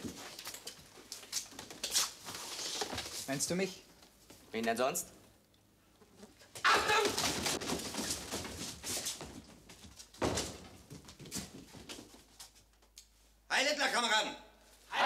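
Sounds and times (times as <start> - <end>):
feet shuffling: 6.1 - 13.4.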